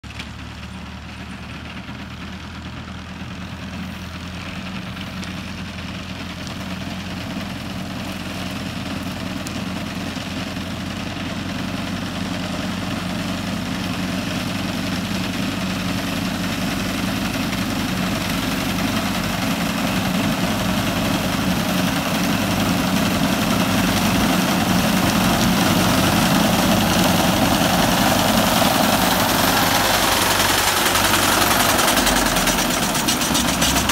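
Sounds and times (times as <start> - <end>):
tractor diesel engine running: 0.0 - 33.9
reaper cutting crop: 12.3 - 33.9.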